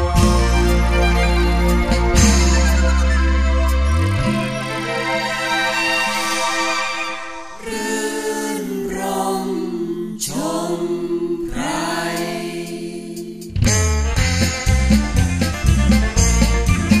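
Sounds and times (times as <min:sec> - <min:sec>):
choir-like background music: 0:00.0 - 0:13.6.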